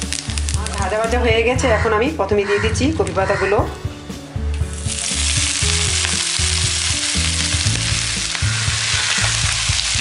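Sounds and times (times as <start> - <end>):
leaves sizzling in hot oil: 0.0 - 1.6, 4.6 - 10.0.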